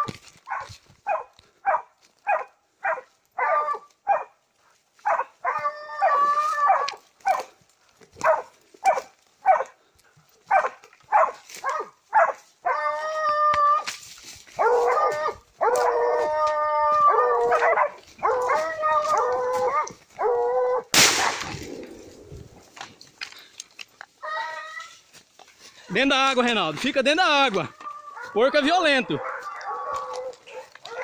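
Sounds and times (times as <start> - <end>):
dogs baying: 0.0 - 4.3, 5.0 - 9.8, 10.4 - 13.8, 14.6 - 22.8, 27.6 - 31.0
dogs barking: 0.0 - 4.4, 5.0 - 7.6, 8.2 - 9.8, 10.4 - 13.1, 14.6 - 22.2, 27.6 - 31.0.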